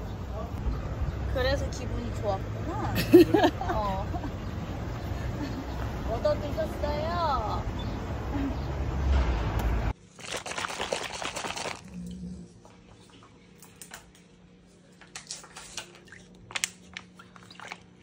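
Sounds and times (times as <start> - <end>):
street noise: 0.0 - 10.0.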